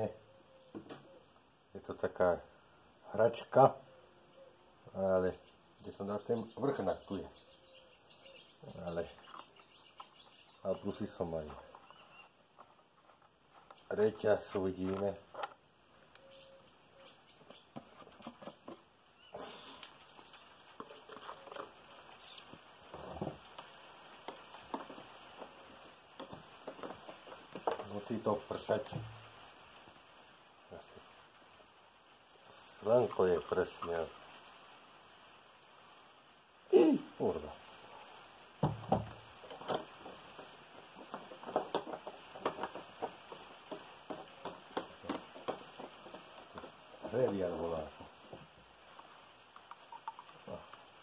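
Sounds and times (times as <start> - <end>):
faint steady hiss: 0.0 - 51.0
raindrops dripping: 19.1 - 51.0.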